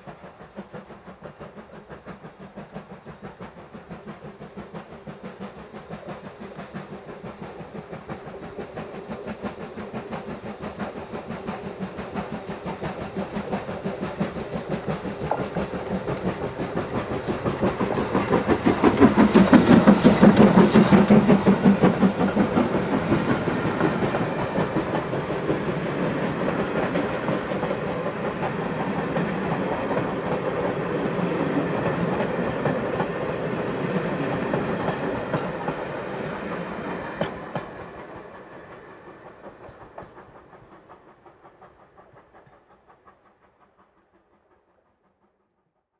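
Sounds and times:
steam train passing: 0:00.0 - 0:45.5
wheels clacking over rail joints: 0:13.2 - 0:40.9.

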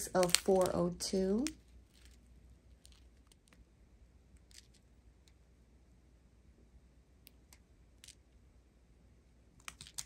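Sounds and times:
plastic bags crinkling: 0:00.0 - 0:02.2
faint low hum: 0:00.0 - 0:10.0.

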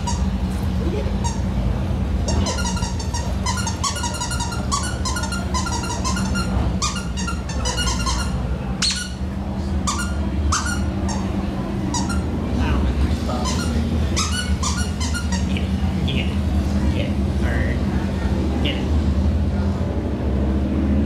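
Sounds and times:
steady low hum: 0:00.0 - 0:21.0
puppy yipping: 0:02.3 - 0:09.2, 0:13.4 - 0:15.5.

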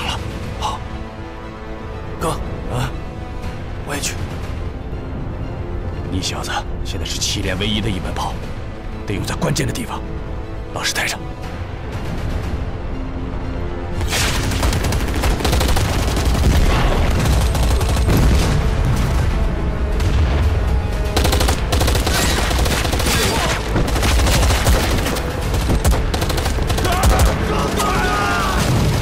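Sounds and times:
film score: 0:00.0 - 0:29.0
rapid gunfire: 0:14.1 - 0:18.5, 0:21.1 - 0:27.8
booming explosions: 0:14.1 - 0:26.1.

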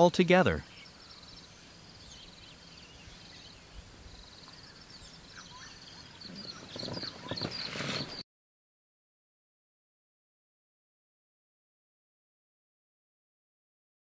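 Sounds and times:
high-pitched twittering calls: 0:00.0 - 0:08.2.

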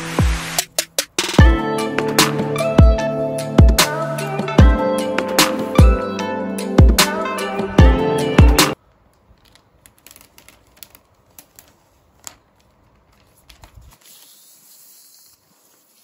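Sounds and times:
music: 0:00.0 - 0:08.8
plastic film crackling: 0:08.8 - 0:16.0.

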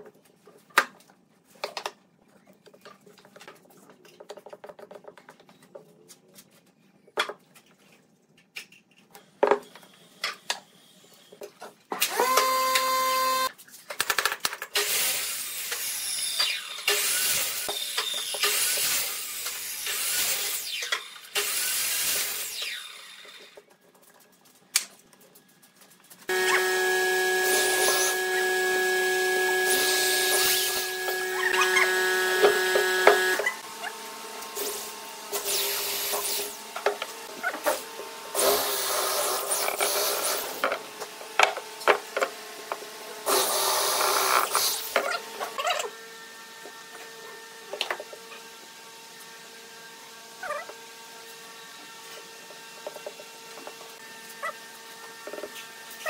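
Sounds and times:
electric drill running: 0:12.0 - 0:13.5, 0:26.3 - 0:37.2, 0:43.2 - 0:45.4.

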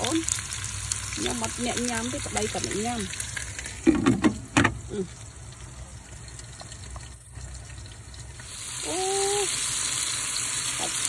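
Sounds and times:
meat sizzling under lid: 0:00.0 - 0:11.0.

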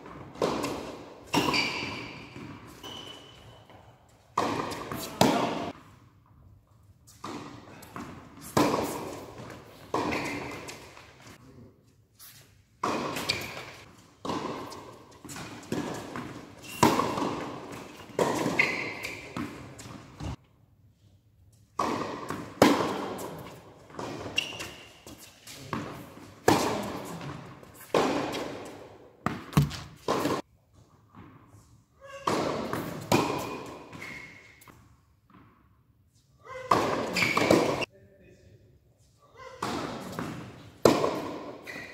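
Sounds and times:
racket hitting tennis ball: 0:00.0 - 0:06.0, 0:07.1 - 0:11.4, 0:12.8 - 0:20.4, 0:21.7 - 0:30.5, 0:32.0 - 0:35.6, 0:36.5 - 0:37.9, 0:39.4 - 0:41.9
ball bouncing on court: 0:12.8 - 0:20.4, 0:29.2 - 0:30.4.

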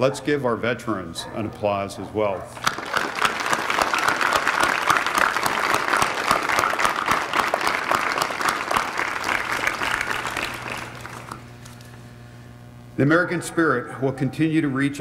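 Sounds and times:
audience applauding: 0:02.6 - 0:11.5.

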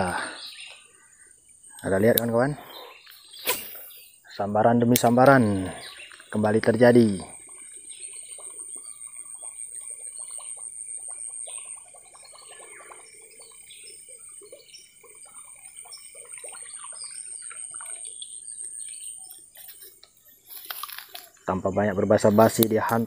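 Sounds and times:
birds chirping: 0:00.0 - 0:23.0
insect drone: 0:00.0 - 0:23.0
water splashing: 0:05.1 - 0:21.4.

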